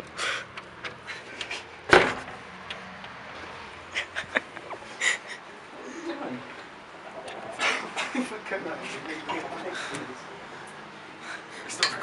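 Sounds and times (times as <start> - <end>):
loud thump: 1.9 - 2.4.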